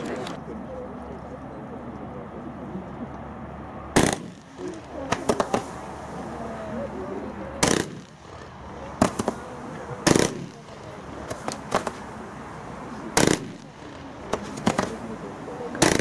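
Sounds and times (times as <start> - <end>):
firework bangs: 3.9 - 6.7, 7.5 - 16.0.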